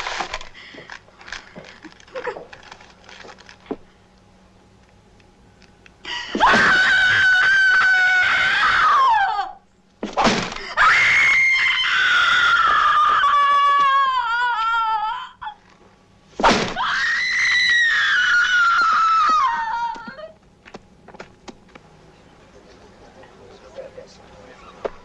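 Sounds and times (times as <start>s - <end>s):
woman screaming in pain: 6.3s - 9.6s, 10.6s - 15.6s, 16.8s - 20.4s.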